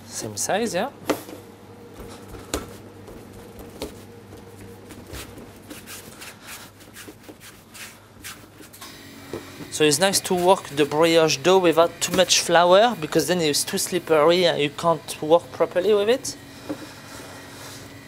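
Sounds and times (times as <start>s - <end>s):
hands rolling dough: 1.9s - 8.8s.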